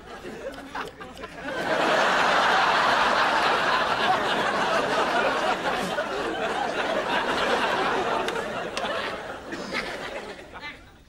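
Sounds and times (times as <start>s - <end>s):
audience laughing: 0.0s - 11.0s.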